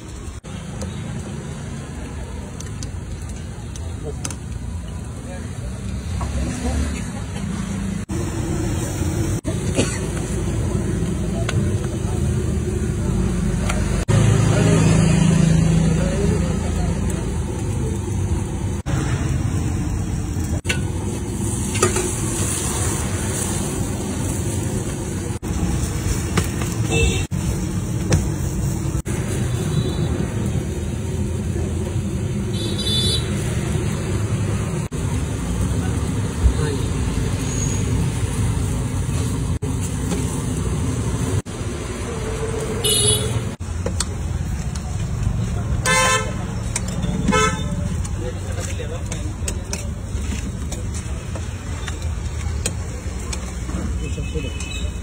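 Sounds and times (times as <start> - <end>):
low rumble of street noise: 0.0 - 55.0
vehicle horn toot: 26.9 - 27.3, 32.6 - 33.3, 42.8 - 43.4, 45.8 - 46.4, 47.2 - 47.7.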